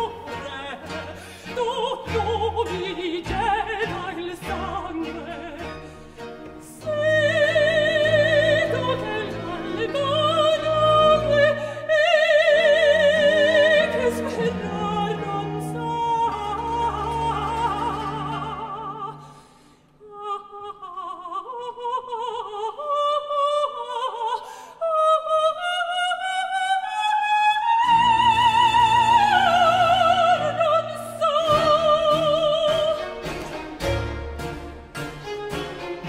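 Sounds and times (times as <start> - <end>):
orchestra playing: 0.0 - 19.3, 28.0 - 36.0
woman singing opera: 0.0 - 33.5.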